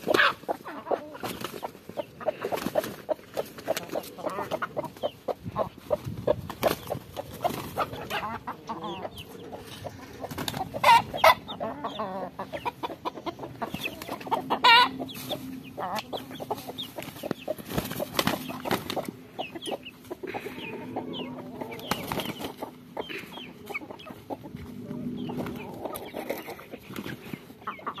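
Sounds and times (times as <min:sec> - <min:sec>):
chickens clucking: 0:00.0 - 0:28.0
loud chicken squawks: 0:10.7 - 0:12.4, 0:14.3 - 0:15.0.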